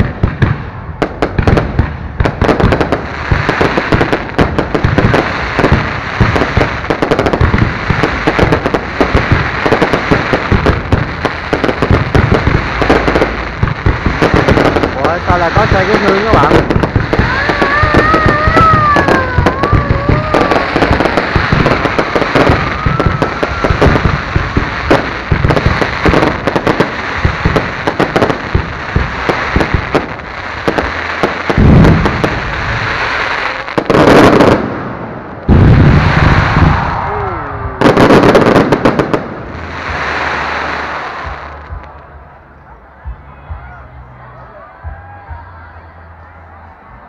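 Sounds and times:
booming firework bursts: 0.0 - 43.2
fireworks crackling: 0.0 - 43.4.

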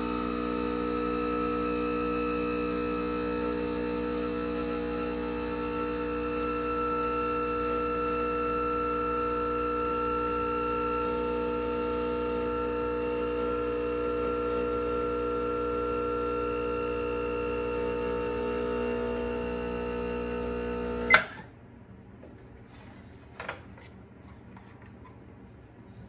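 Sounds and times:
espresso machine pump humming: 0.0 - 21.4.

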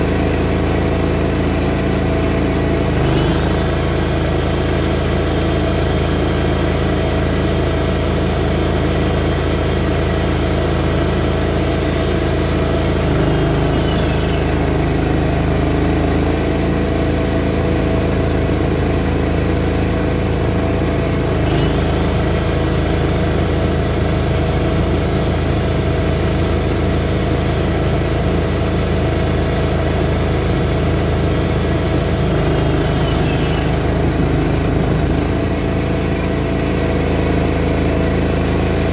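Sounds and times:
mower engine running: 0.0 - 38.9
short rising whine: 20.4 - 24.0.

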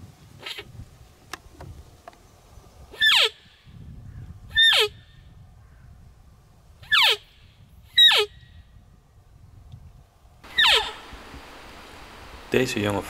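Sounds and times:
squeaky deer call: 0.4 - 0.7, 3.0 - 3.6, 4.5 - 5.1, 6.8 - 8.6, 10.4 - 11.1.

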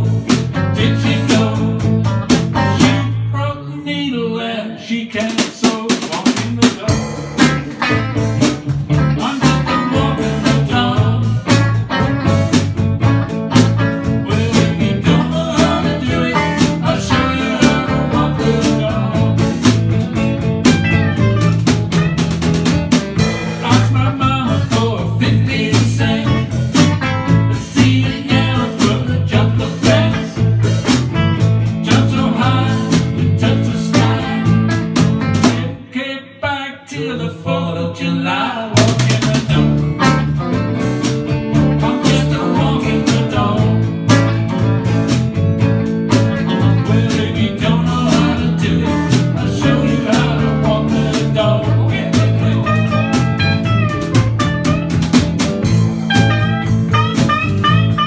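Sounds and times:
drum kit: 0.0 - 3.2, 5.2 - 35.8, 38.7 - 58.0
electric guitars: 0.0 - 3.2, 6.8 - 35.9, 39.2 - 58.0
man singing: 0.0 - 7.6, 8.9 - 11.8, 14.0 - 20.2, 23.4 - 31.0, 31.6 - 40.2, 41.6 - 44.2, 46.3 - 54.1.

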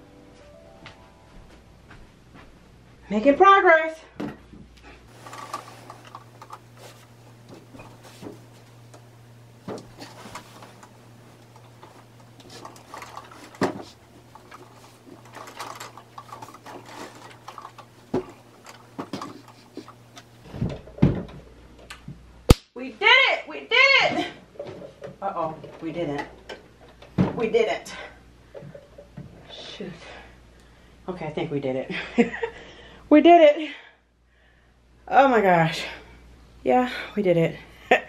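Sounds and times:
steady low hum: 0.0 - 38.0
bare feet shuffling on rug: 0.8 - 2.7.

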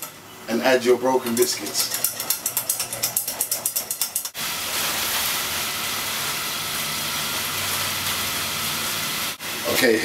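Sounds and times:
margarine sizzling in a pan: 4.3 - 10.0.

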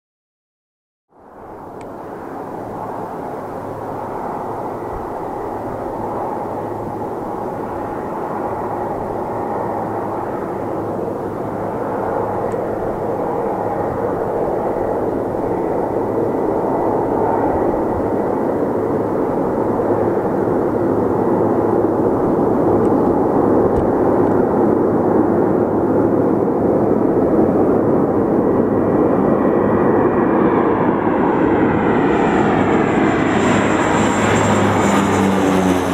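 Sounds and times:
turboprop engines droning: 1.1 - 35.9
rising whine: 29.7 - 35.9.

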